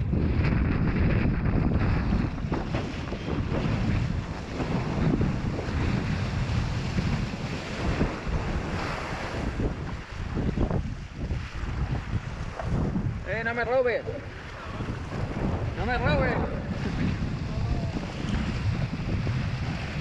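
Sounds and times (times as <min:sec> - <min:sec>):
water splashing against board: 0:00.0 - 0:13.4
wind buffeting microphone: 0:00.0 - 0:20.0.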